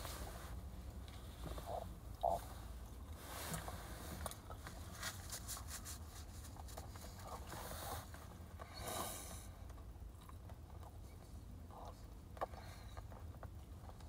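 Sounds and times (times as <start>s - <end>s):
person chewing food: 9.6s - 14.0s.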